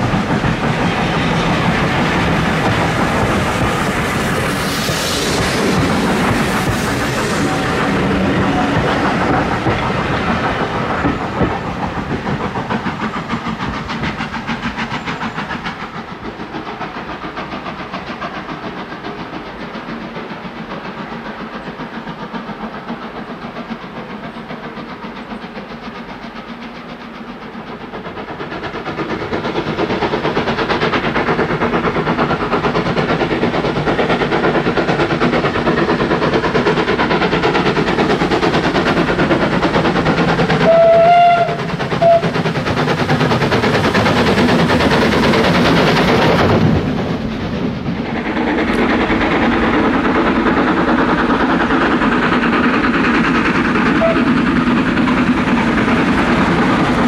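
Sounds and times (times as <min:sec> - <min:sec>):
coach wheels clattering: 0:00.0 - 0:20.2
steam locomotive chuffing: 0:00.0 - 0:57.0.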